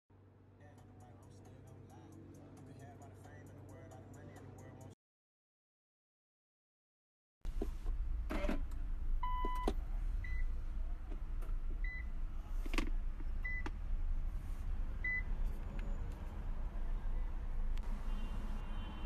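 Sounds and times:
dashboard warning beeps: 9.2 - 10.5, 11.8 - 12.1, 13.4 - 13.7, 15.0 - 15.3.

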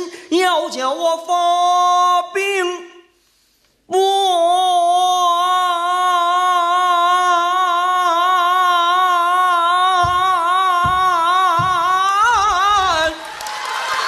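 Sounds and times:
man singing long high note: 3.9 - 13.3
low thumps: 10.0 - 13.2.

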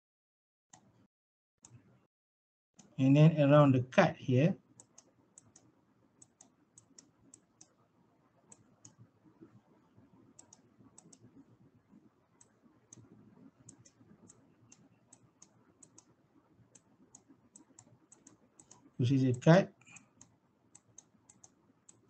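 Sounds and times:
faint low background noise: 2.8 - 22.0
computer mouse clicking: 4.7 - 22.0.

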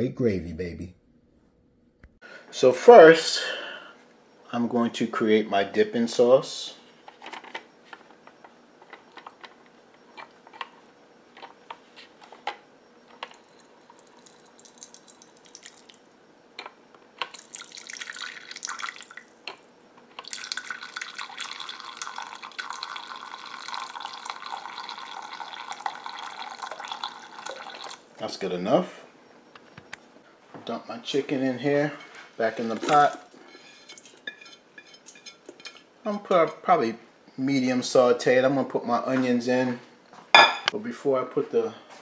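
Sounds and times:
gravy pouring into a bowl: 13.4 - 16.0, 17.3 - 19.3, 20.2 - 28.0.

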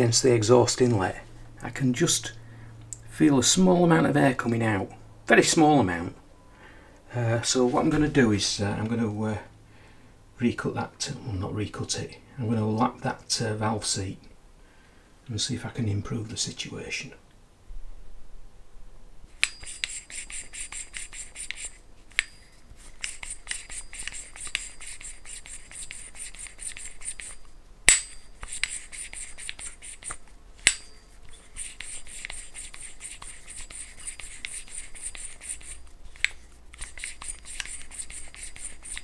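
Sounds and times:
valve scratching against seat: 19.4 - 27.5, 28.4 - 39.0.

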